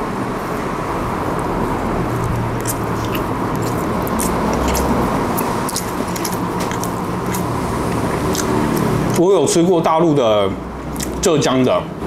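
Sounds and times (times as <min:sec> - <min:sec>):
background noise with low hum: 0:00.0 - 0:12.0
person chewing sticky food: 0:01.3 - 0:09.3, 0:10.9 - 0:11.2
wet mouth clicks: 0:02.6 - 0:09.2.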